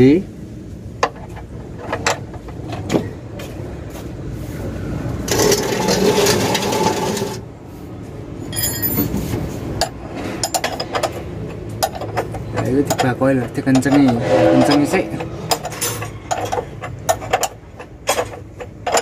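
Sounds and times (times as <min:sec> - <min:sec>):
metal can scraping across floor: 0:05.3 - 0:07.4, 0:14.0 - 0:16.2
clicks and knocks of work: 0:09.8 - 0:14.2, 0:15.5 - 0:19.0.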